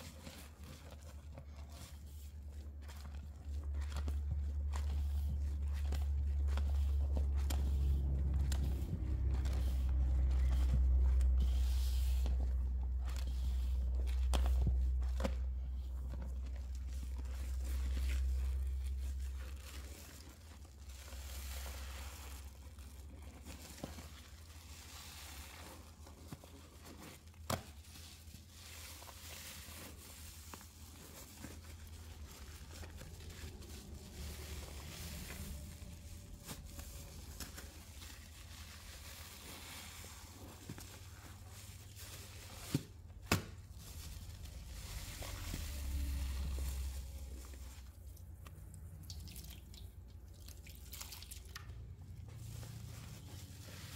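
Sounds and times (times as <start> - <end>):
foam crackling in squeezed sponge: 0.0 - 53.9
low rumble: 3.3 - 19.9, 43.8 - 48.0.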